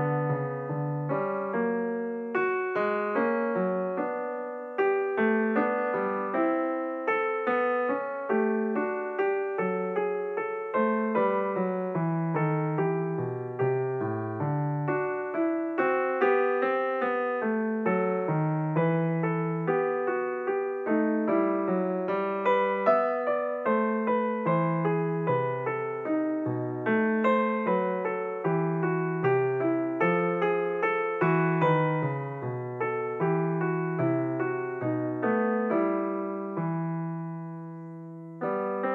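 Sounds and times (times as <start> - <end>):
solo piano melody: 0.0 - 38.9.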